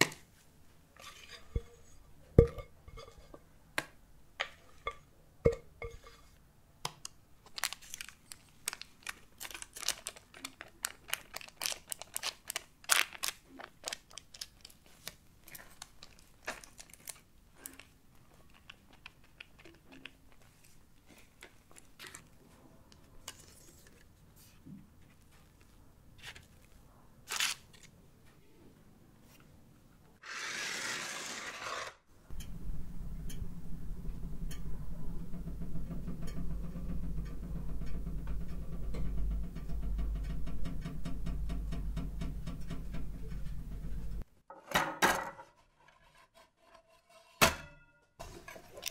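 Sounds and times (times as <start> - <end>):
plastic scraper scraping on paper: 30.2 - 32.0
oven fan humming: 32.3 - 44.2.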